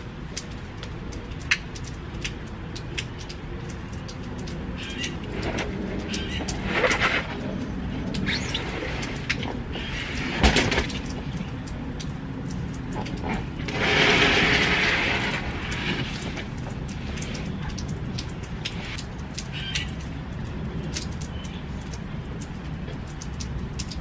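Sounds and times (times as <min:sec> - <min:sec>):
light rain: 0:00.0 - 0:24.0
rough scraping noise: 0:05.2 - 0:11.0, 0:13.1 - 0:17.5.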